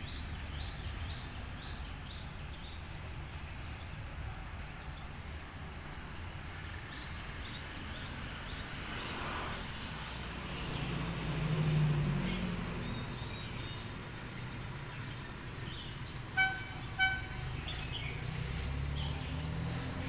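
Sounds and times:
diesel engine rumble: 0:00.0 - 0:20.0
locomotive horn toots: 0:16.3 - 0:17.5.

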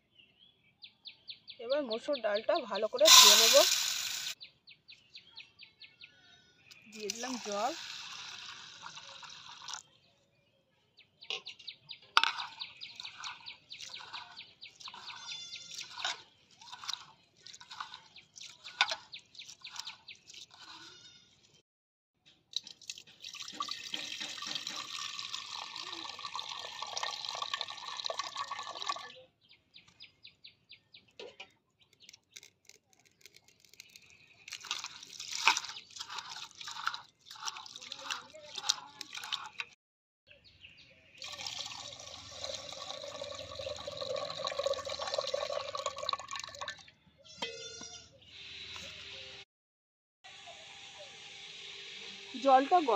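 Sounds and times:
water pouring into metal pot: 0:03.0 - 0:04.4, 0:07.0 - 0:09.8, 0:12.2 - 0:20.9, 0:22.6 - 0:29.1, 0:34.5 - 0:39.7, 0:41.2 - 0:46.9
hands swishing lentils in water: 0:12.2 - 0:21.0, 0:34.5 - 0:39.7.

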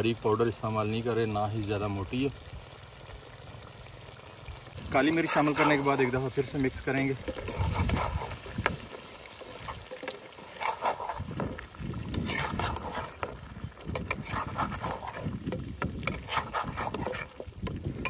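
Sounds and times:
ladle scraping a pan: 0:04.9 - 0:18.0.

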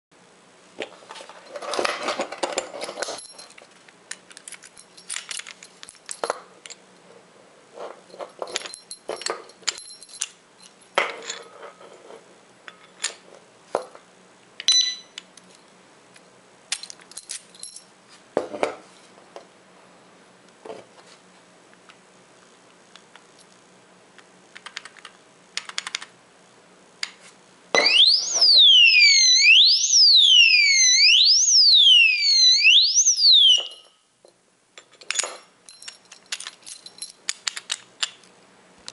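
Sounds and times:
electronic warbling alarm siren: 0:27.8 - 0:33.9.

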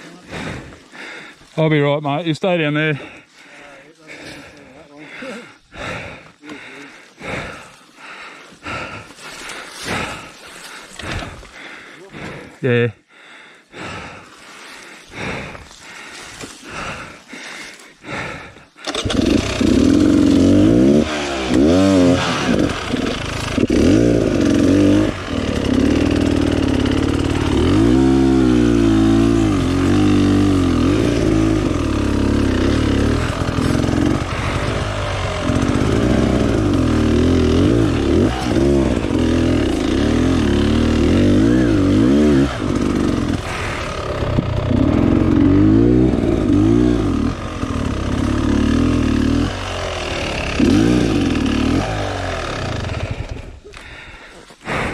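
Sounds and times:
dirt bike engine revving: 0:18.2 - 0:54.1.

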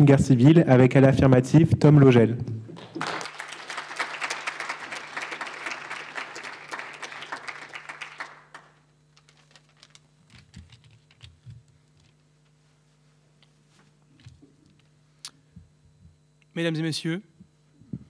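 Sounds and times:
audience applauding: 0:02.8 - 0:10.0
papers rustling: 0:09.1 - 0:12.2.

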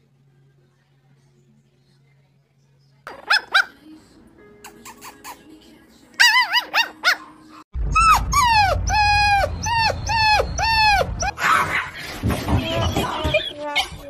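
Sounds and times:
puppy yipping: 0:03.2 - 0:03.8, 0:06.2 - 0:11.9, 0:12.7 - 0:14.0
puppy whining cries: 0:06.2 - 0:07.3, 0:07.9 - 0:12.0, 0:12.6 - 0:14.0.

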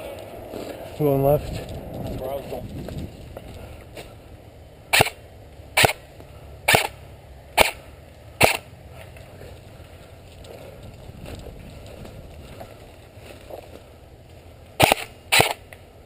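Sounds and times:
airsoft rifle shots: 0:04.9 - 0:05.2, 0:05.8 - 0:06.0, 0:06.7 - 0:07.0, 0:07.6 - 0:07.8, 0:08.4 - 0:08.7, 0:14.8 - 0:15.7.

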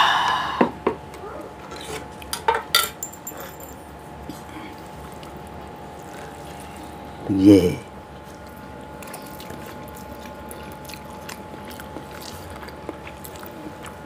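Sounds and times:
forks clinking on a tray: 0:02.4 - 0:03.8.

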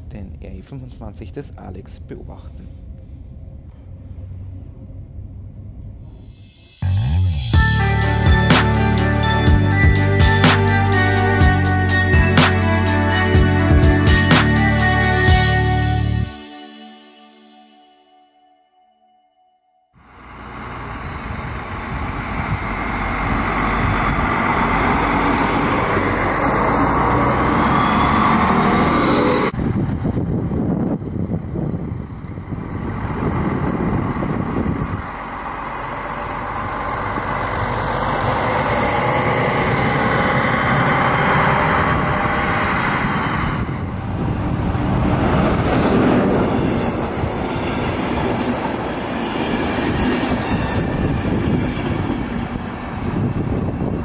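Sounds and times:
diesel railcar passing: 0:01.8 - 0:16.5, 0:20.0 - 0:54.0
train coaches rolling by: 0:20.0 - 0:30.1, 0:30.9 - 0:54.0.

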